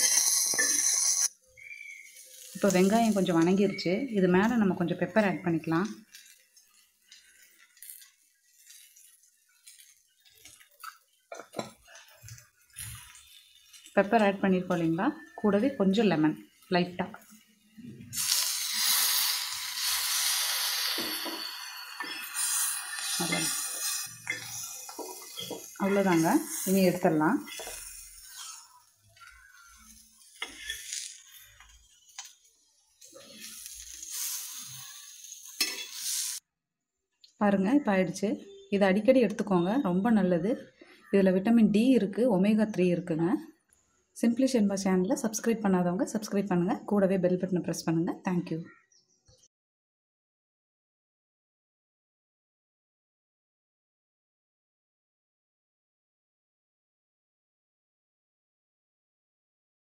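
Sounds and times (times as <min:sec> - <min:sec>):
spatula scraping griddle: 0:00.0 - 0:01.3, 0:18.2 - 0:32.4, 0:33.0 - 0:36.4
sizzling hiss: 0:00.0 - 0:04.0, 0:16.4 - 0:36.4.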